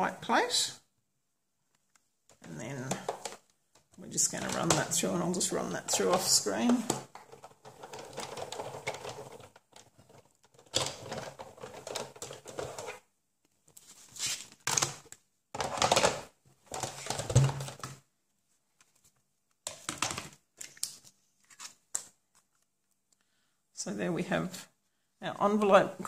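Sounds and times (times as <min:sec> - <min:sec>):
plastic plates handled: 0:01.8 - 0:18.0, 0:18.8 - 0:22.7.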